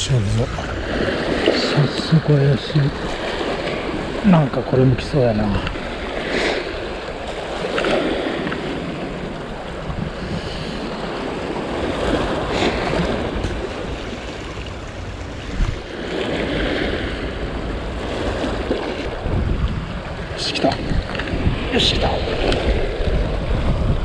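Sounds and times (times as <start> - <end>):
sea water washing against shore: 0.0 - 24.0
wind rumbling on microphone: 0.0 - 24.0.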